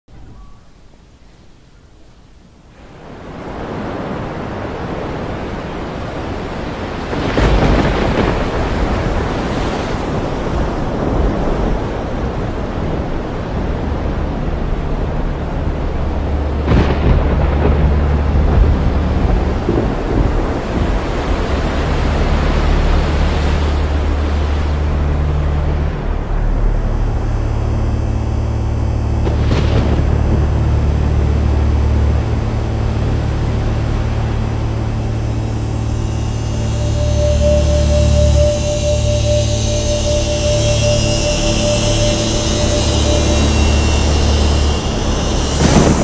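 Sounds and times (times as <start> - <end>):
low steady drone: 0.1 - 46.0
heavy rain: 2.3 - 46.0
thunderclap: 7.0 - 12.4, 16.6 - 22.0, 42.0 - 46.0.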